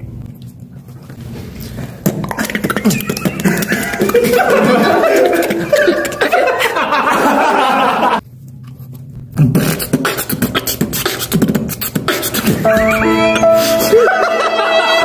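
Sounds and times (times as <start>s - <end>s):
beatboxing mouth percussion: 2.0s - 6.3s, 9.2s - 13.9s
held vocal tones: 2.1s - 6.6s.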